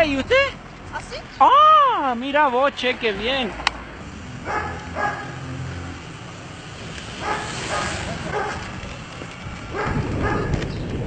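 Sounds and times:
dog barking: 4.4 - 5.4, 7.2 - 8.7, 9.7 - 10.5.

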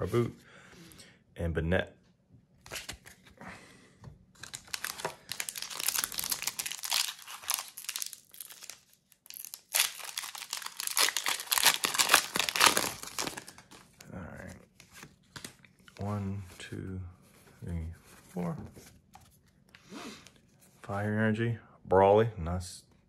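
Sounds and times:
foil wrapper crinkling and tearing: 4.4 - 13.9.

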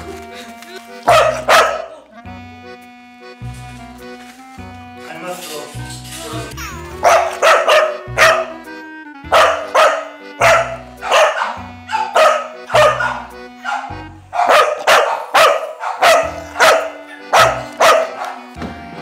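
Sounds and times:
background music: 0.0 - 19.0
dog barking: 1.1 - 2.0, 7.0 - 8.6, 9.3 - 18.5.

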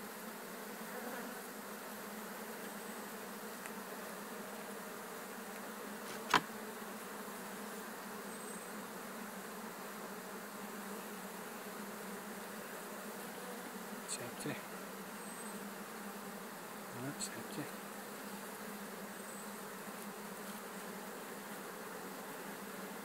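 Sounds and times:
bees buzzing: 0.0 - 23.0.

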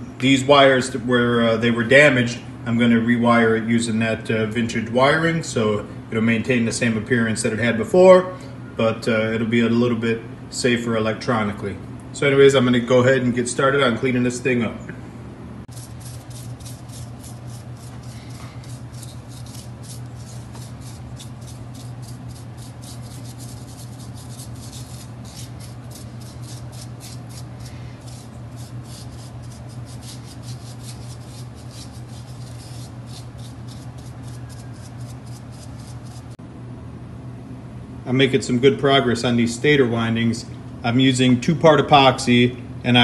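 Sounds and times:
steady low hum: 0.0 - 43.0
brush scrubbing windings: 15.7 - 36.4.

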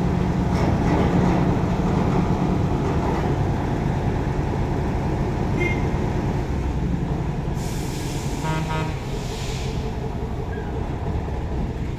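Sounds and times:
diesel engine idling: 3.4 - 11.9
compressed air hiss: 7.6 - 9.9.

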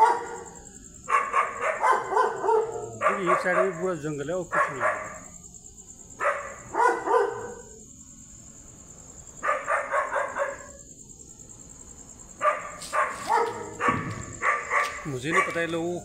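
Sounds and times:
dogs barking: 0.0 - 5.4, 6.2 - 7.8, 9.4 - 10.9, 12.4 - 16.0.

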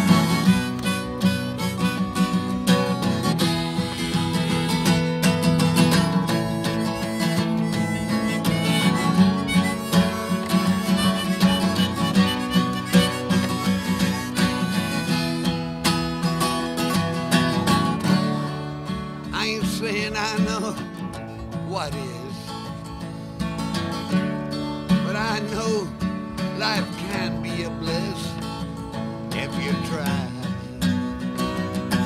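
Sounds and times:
harmonica playing held notes: 0.0 - 18.6
acoustic guitar strumming: 0.0 - 32.0.

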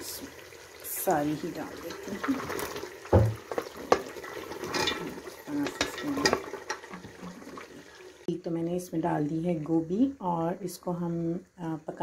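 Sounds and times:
hot oil hissing: 0.0 - 8.3
vegetables clattering into pot: 1.9 - 7.9.

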